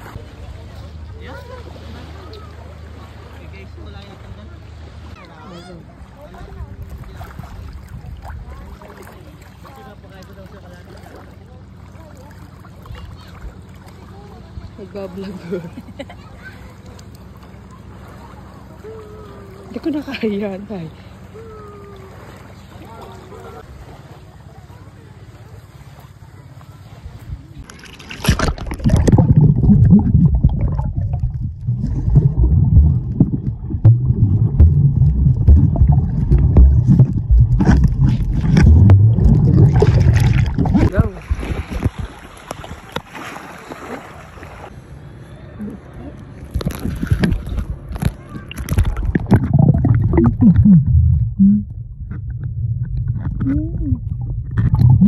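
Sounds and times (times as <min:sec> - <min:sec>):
water splashing: 0:01.3 - 0:15.5, 0:27.6 - 0:44.7, 0:46.3 - 0:55.0
muffled underwater rumble: 0:21.2 - 0:42.9, 0:45.4 - 0:55.0
muffled voice-like tones: 0:47.2 - 0:51.8, 0:53.2 - 0:55.0.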